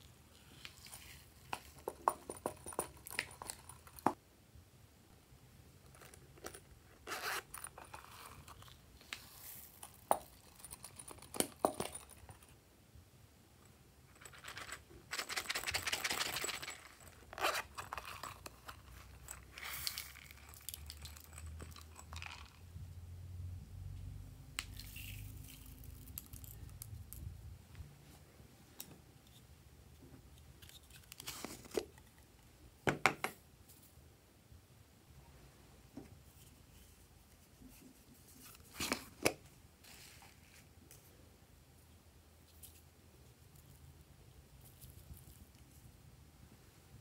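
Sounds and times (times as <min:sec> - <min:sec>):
trinkets clicking and rustling: 0:00.6 - 0:04.2, 0:05.9 - 0:12.6, 0:14.0 - 0:22.7, 0:24.7 - 0:27.3.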